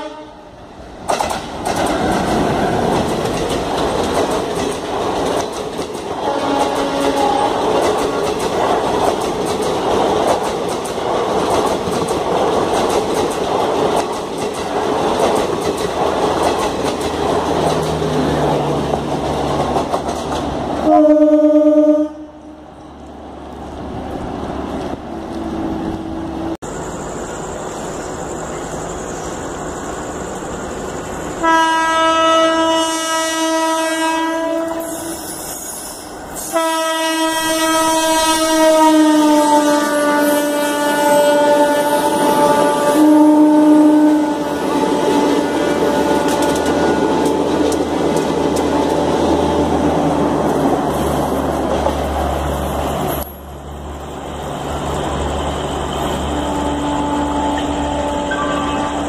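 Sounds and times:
locomotive horn blasts: 0.0 - 0.5, 6.2 - 7.7, 20.8 - 22.6, 31.4 - 35.2, 36.5 - 47.3, 56.3 - 59.0
train coaches running on rails: 0.0 - 59.0
train wheels clickety-clack: 1.0 - 20.9, 44.6 - 53.4.

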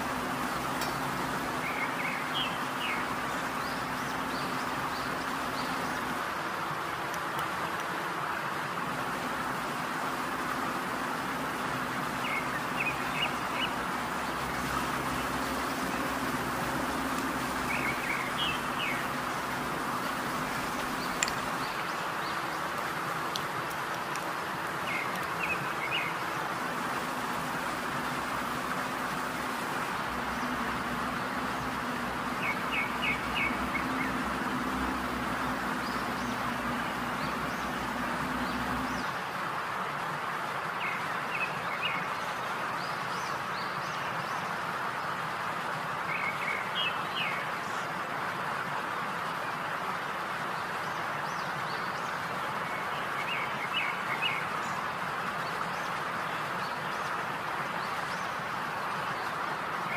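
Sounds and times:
small birds chirping: 0.0 - 39.2, 49.2 - 59.9
steady hiss: 0.0 - 59.9
low hum: 7.1 - 39.1.

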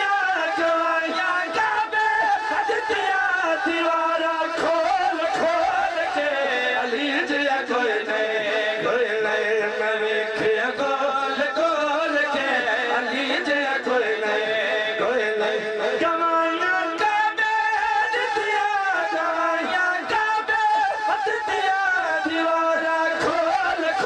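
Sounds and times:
men singing through loudspeakers: 0.0 - 24.0.

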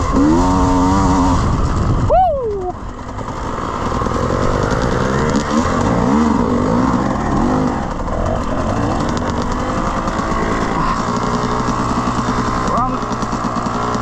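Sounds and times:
dirt bike engine revving: 0.0 - 14.0.

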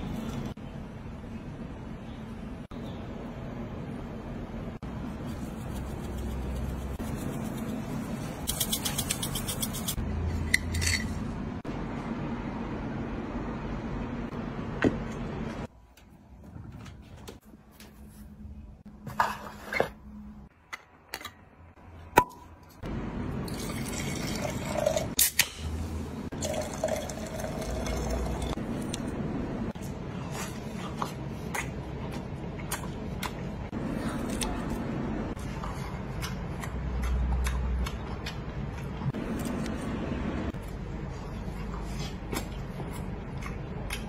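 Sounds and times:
fizzy drink pouring into glass: 26.4 - 28.5.

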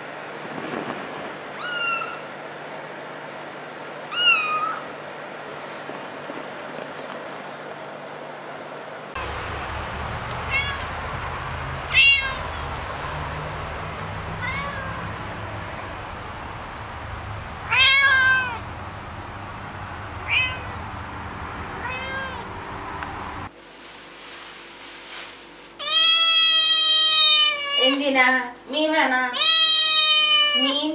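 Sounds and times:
cat meowing: 1.6 - 2.3, 4.1 - 4.9, 10.1 - 11.1, 11.8 - 18.7, 20.0 - 20.9, 21.8 - 22.5, 25.8 - 28.0, 29.4 - 30.8.

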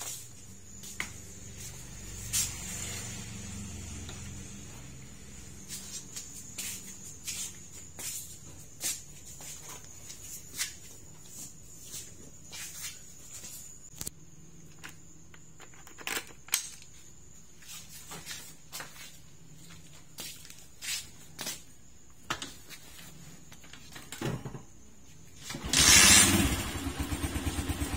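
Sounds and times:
footsteps scuffing: 0.0 - 3.2, 4.0 - 14.0, 17.5 - 23.6.

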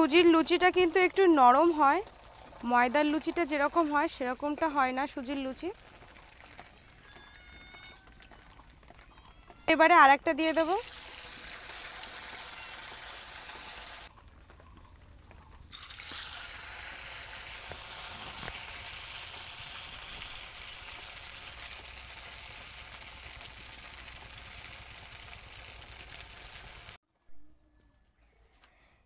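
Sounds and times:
hot oil sizzling and bubbling: 0.0 - 7.5, 9.8 - 14.1, 15.7 - 27.0.

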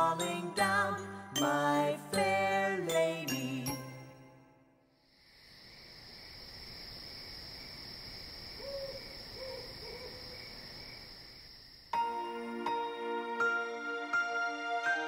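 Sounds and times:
crickets chirring: 4.9 - 12.3
owl hooting: 8.6 - 10.3.

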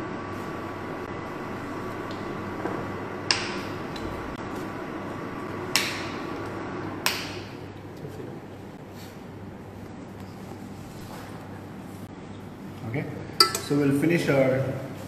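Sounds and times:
steady background hum: 0.0 - 15.0
kitchen utensils clinking: 13.4 - 13.8.

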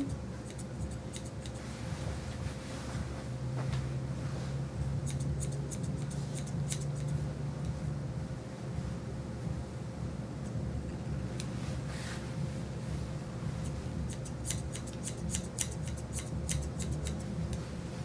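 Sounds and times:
grooming shears snipping fur: 0.0 - 2.6, 5.0 - 7.2, 13.5 - 17.7
low steady hum: 0.0 - 18.0.

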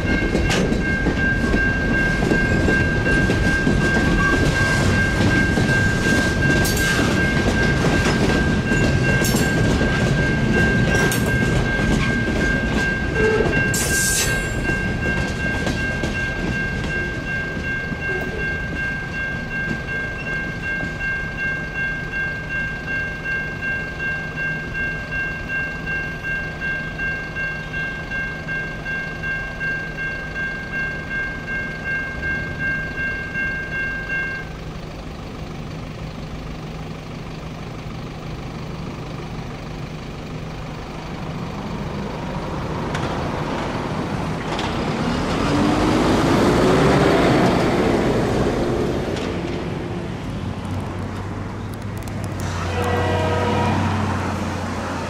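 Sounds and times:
electronic crossing bell ringing: 0.0 - 34.7
road vehicle driving past: 41.0 - 55.0.

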